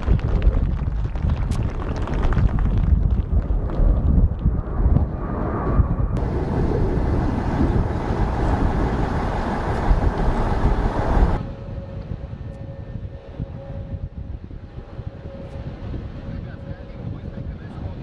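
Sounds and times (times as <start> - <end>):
jet engines at takeoff power: 3.8 - 18.0
steady drone: 6.1 - 16.2.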